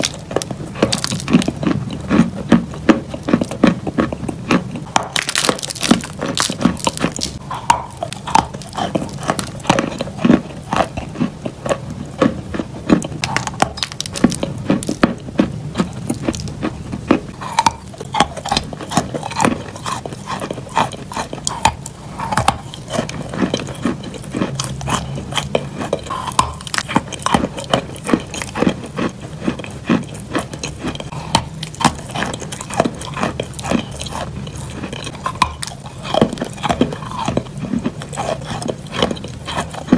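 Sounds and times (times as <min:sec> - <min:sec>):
chalk crunching while chewed: 0:00.0 - 0:39.9.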